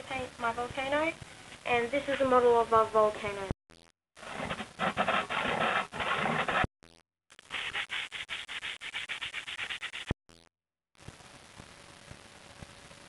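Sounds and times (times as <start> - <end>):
handsaw cutting board: 4.2 - 6.7.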